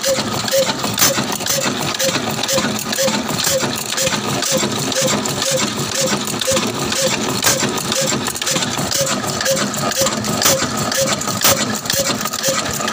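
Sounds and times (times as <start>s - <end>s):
sharp mechanical clicks: 0.0s - 12.9s
stationary diesel engine running: 0.0s - 12.9s.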